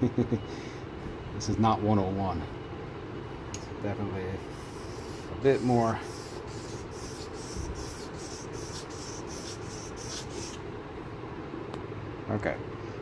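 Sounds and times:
blade scraping on whetstone: 4.7s - 10.6s.

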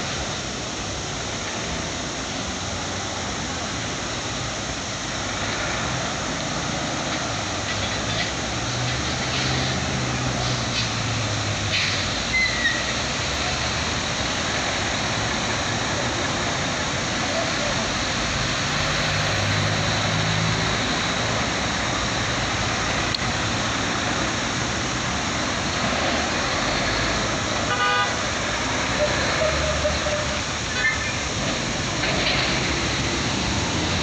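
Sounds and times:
cars passing: 0.0s - 34.0s
truck diesel engine: 0.0s - 34.0s
vehicle horn toot: 27.7s - 28.2s.

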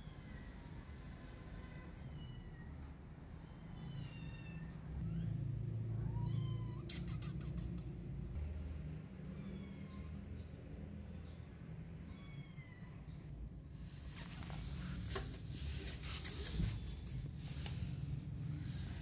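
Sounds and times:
kitten meowing: 6.0s - 7.9s.

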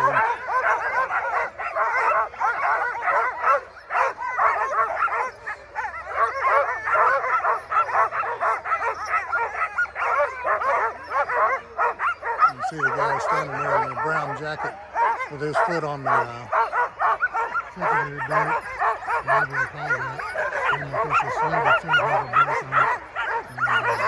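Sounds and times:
dogs barking and yipping: 0.0s - 24.0s.

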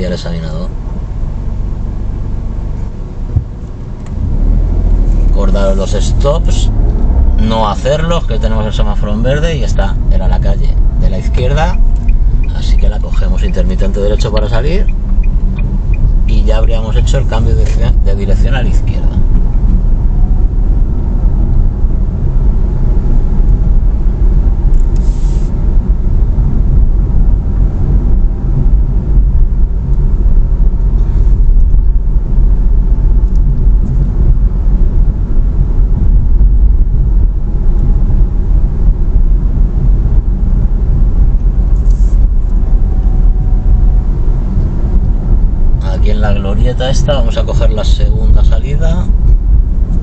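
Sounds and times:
car engine and road rumble: 0.0s - 50.0s.

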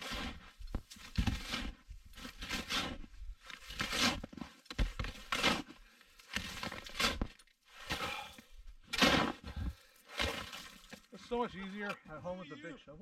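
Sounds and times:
shovel digging into snow: 0.0s - 8.3s, 8.9s - 10.7s.

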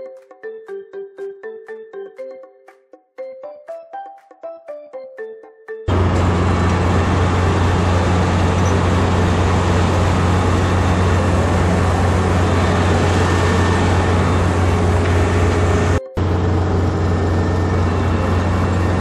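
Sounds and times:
combine harvester engine hum: 5.9s - 19.0s
harvesting machinery rushing: 5.9s - 19.0s.

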